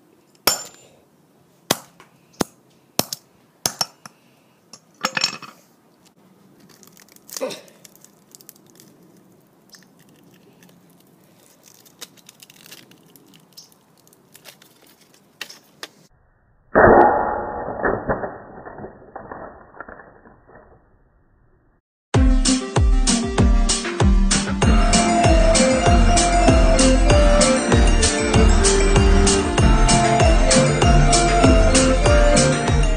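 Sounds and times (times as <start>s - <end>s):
phone cracking under pliers: 6.6s - 15.6s
broken pieces clinking: 11.4s - 15.6s, 17.2s - 20.9s.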